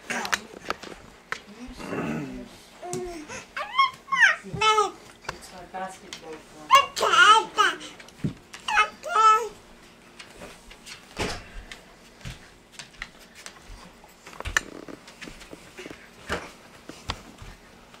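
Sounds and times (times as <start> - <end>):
dog moving on hard floor: 10.2 - 17.6.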